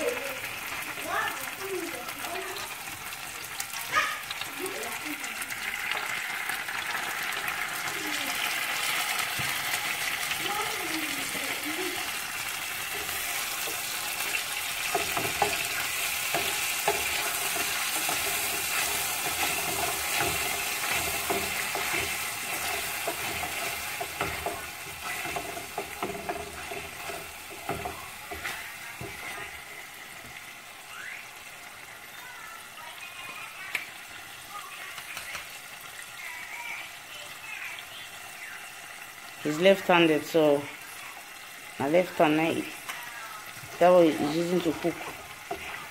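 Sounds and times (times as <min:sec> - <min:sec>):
sauce sizzling in a saucepan: 0:00.0 - 0:45.9
wooden spoon knocking against pan: 0:12.8 - 0:29.6.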